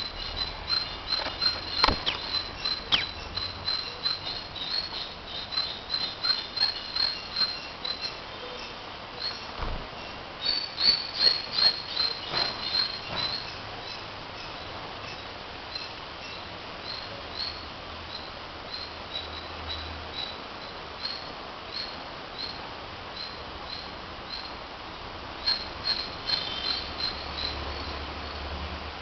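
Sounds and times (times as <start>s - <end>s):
short high chirps: 2.9s - 3.2s.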